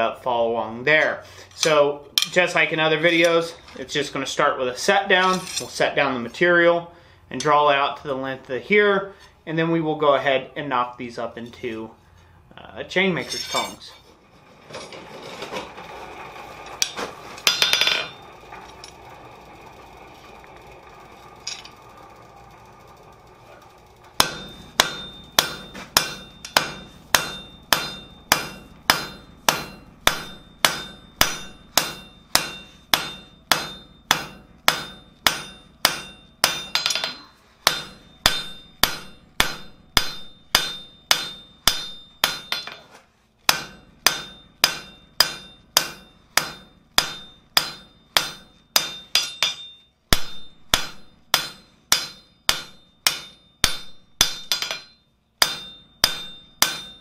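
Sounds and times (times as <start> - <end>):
hammer striking steel on anvil: 1.6 - 3.5, 13.2 - 13.9, 16.8 - 19.0, 24.2 - 57.0.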